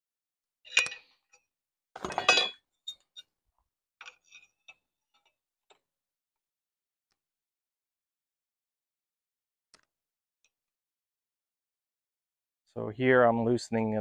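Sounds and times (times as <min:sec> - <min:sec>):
metal parts clattering: 0:00.7 - 0:01.1, 0:02.0 - 0:02.6.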